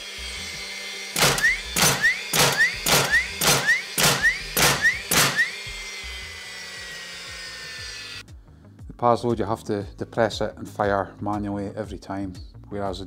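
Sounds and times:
nail gun firing thuds: 1.2s - 5.5s.

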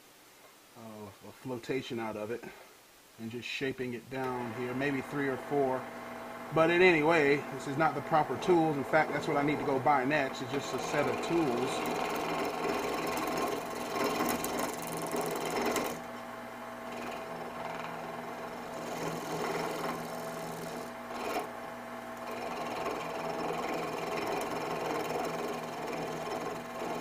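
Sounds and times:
blade scraping spinning wood: 4.2s - 5.8s, 6.5s - 16.2s, 16.8s - 27.0s
lathe motor hum: 4.2s - 27.0s.

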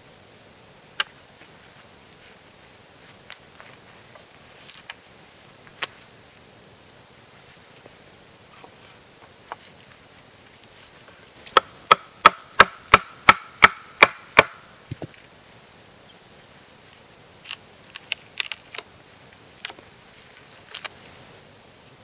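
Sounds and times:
knife striking a log: 11.5s - 15.1s.

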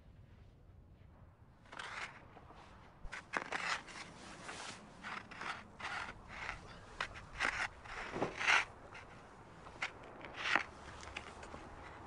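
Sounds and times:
snow crunching and scraping: 1.7s - 12.0s.

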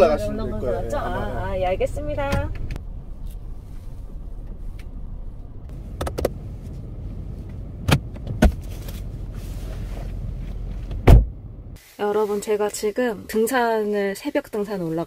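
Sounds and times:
car engine running low: 0.0s - 11.8s
thump: 10.9s - 11.4s.

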